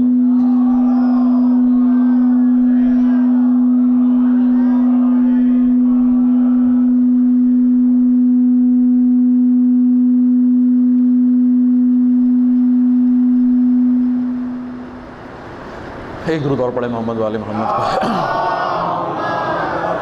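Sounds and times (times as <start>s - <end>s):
steady low tone: 0.0s - 17.3s.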